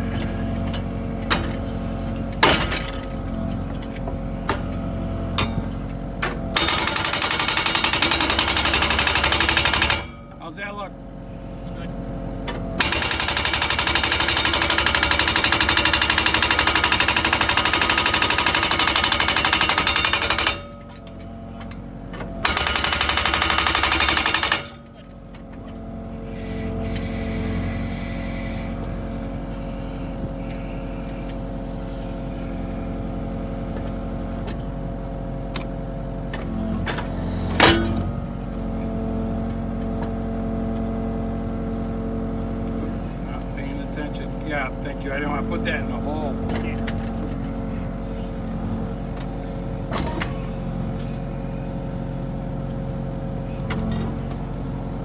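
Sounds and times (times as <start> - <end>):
machine engine running: 12.2 - 34.8.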